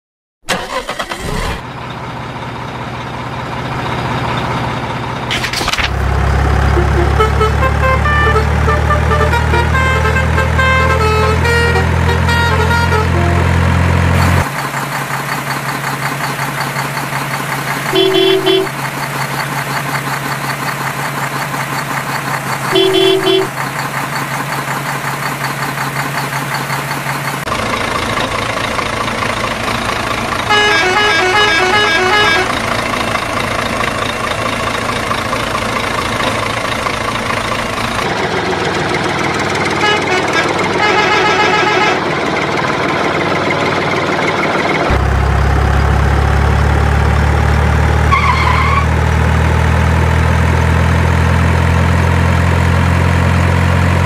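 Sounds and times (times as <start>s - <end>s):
truck engine drone: 0.4s - 54.0s
horn toot: 6.7s - 13.6s, 17.9s - 18.7s, 22.7s - 23.5s, 30.5s - 32.6s, 39.8s - 42.0s
beeping tones: 17.9s - 18.7s, 22.7s - 23.5s.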